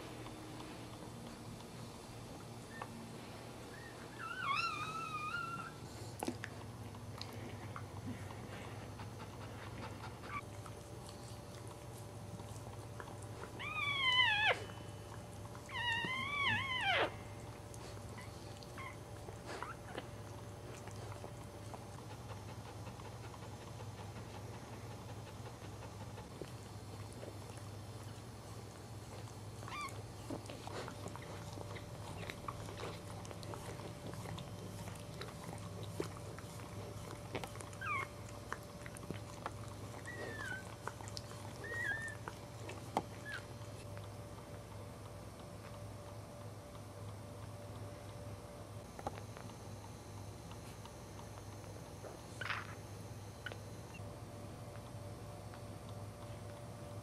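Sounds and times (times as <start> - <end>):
puppies crying: 3.7 - 5.8, 13.5 - 14.9, 15.6 - 17.5, 29.6 - 30.0, 37.5 - 38.4, 39.9 - 42.4.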